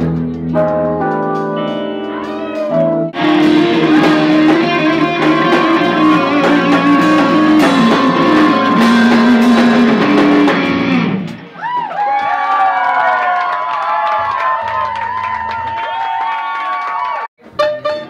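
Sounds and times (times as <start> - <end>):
held keyboard chords: 0.0 - 11.4
funk band playing: 0.0 - 11.6, 17.4 - 18.0.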